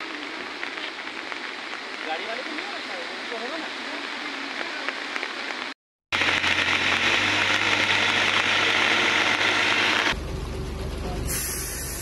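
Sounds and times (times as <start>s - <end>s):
heavy rain hissing: 0.0s - 10.2s, 11.2s - 12.0s
diesel engine hum: 6.2s - 12.0s.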